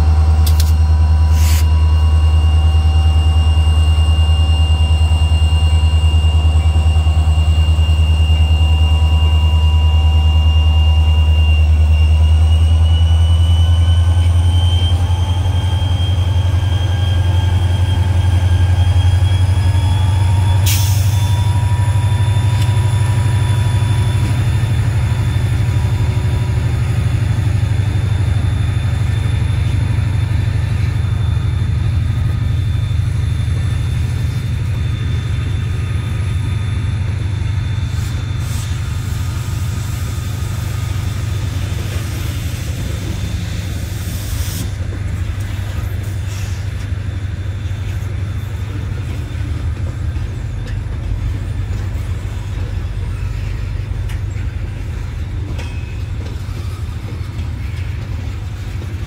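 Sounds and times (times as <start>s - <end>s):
train wheels rumbling on rail: 0.0s - 59.0s
brief high hiss: 1.3s - 1.7s.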